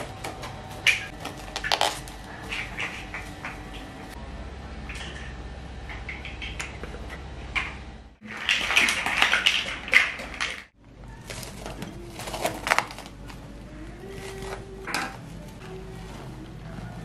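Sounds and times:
steady low hum: 0:00.0 - 0:17.0
cling film crinkling: 0:00.5 - 0:03.6, 0:11.1 - 0:17.0.

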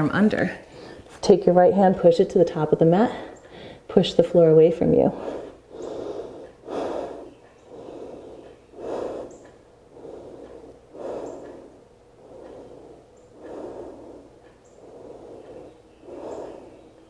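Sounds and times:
woman breathing deeply: 0:03.1 - 0:03.9, 0:05.0 - 0:17.0.

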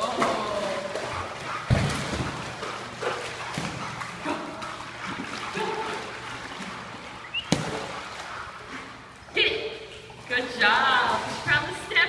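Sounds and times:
dog splashing through pool water: 0:00.0 - 0:12.0.

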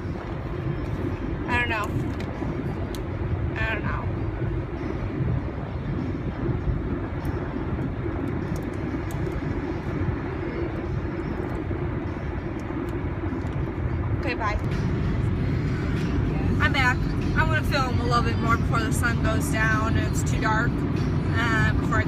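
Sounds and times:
car engine rumble: 0:00.0 - 0:22.0
tyre road noise: 0:00.0 - 0:22.0.

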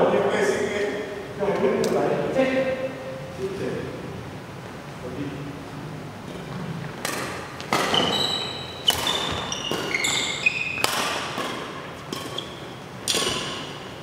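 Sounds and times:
rackets hitting shuttlecock: 0:07.0 - 0:14.0
sneakers squeaking on court: 0:07.6 - 0:14.0.

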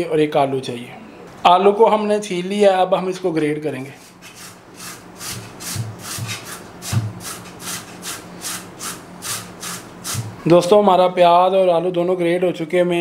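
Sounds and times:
potato rasping on grater: 0:04.0 - 0:10.3.

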